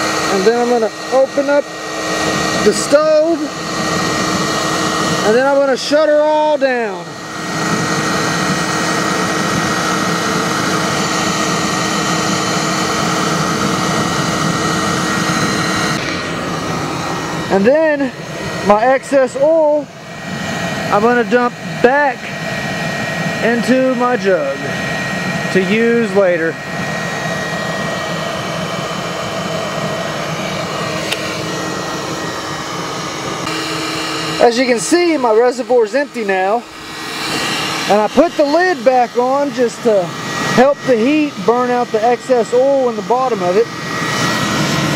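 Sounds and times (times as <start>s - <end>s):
constant hum: 0.0s - 44.9s
forge burner roaring: 0.0s - 44.9s.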